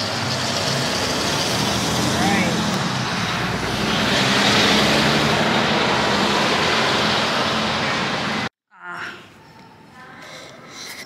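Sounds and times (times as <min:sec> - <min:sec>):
passing cars rushing: 0:00.0 - 0:08.5.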